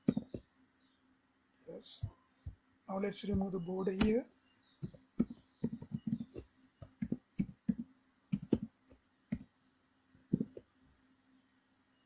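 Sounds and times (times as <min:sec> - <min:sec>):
computer keyboard typing: 0:00.0 - 0:00.4, 0:04.8 - 0:08.7, 0:10.3 - 0:10.6.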